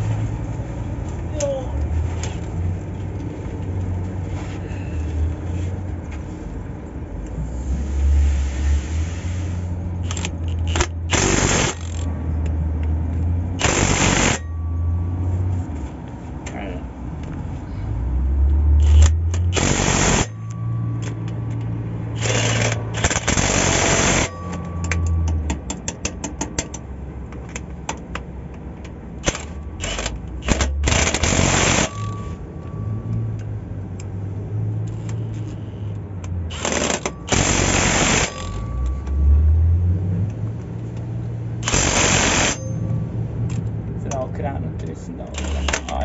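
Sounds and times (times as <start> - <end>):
pneumatic impact wrench bursts: 7.8 - 12.1, 13.6 - 14.6, 18.8 - 20.4, 22.1 - 24.6, 29.2 - 32.4, 36.5 - 38.7, 41.6 - 42.8, 45.4 - 45.9
ratchet-like clicks: 29.2 - 32.2, 36.2 - 38.6.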